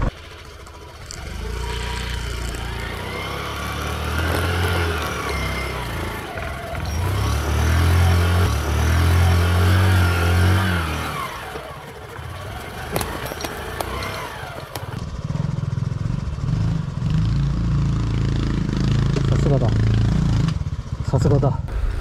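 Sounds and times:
motorbike engine revving: 0:00.0 - 0:22.0.

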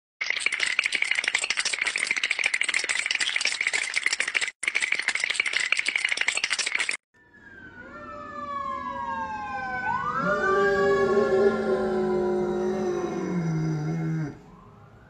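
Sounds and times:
dog's teeth chattering: 0:00.2 - 0:07.0.

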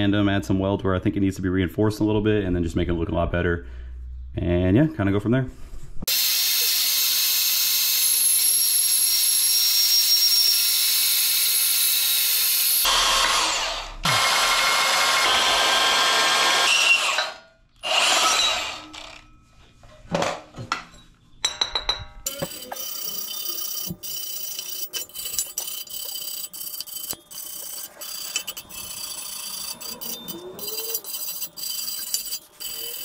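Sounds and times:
band saw cutting steel: 0:06.1 - 0:19.2, 0:22.3 - 0:33.0.

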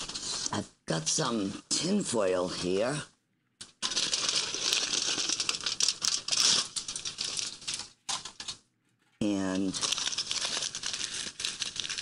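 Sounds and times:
aluminium foil crinkling: 0:03.6 - 0:12.0.

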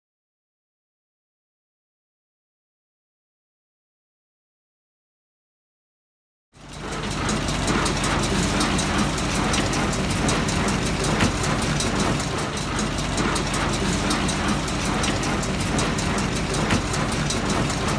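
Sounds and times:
baler metallic clattering: 0:06.6 - 0:17.9
tractor engine drone: 0:06.6 - 0:17.9.

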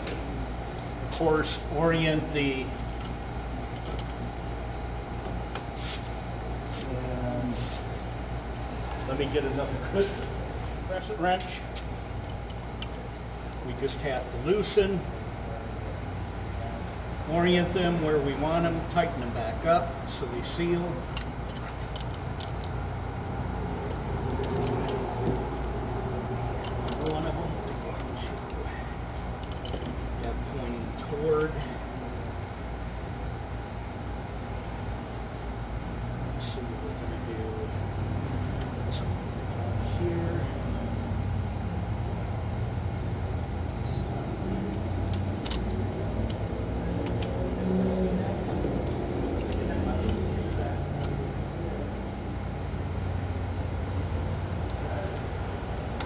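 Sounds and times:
steady low hum: 0:00.0 - 0:56.0
wrenches clinking on metal fittings: 0:26.4 - 0:27.5, 0:44.7 - 0:45.8.

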